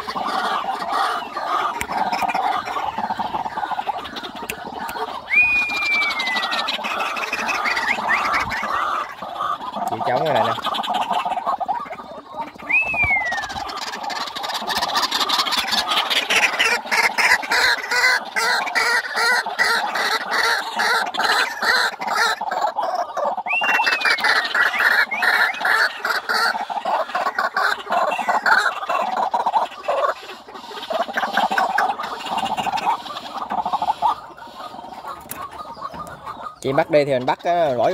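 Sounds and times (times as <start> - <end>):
birds croaking: 0.0 - 37.9
short falling whistles: 5.3 - 6.5, 12.7 - 13.5, 23.5 - 24.2.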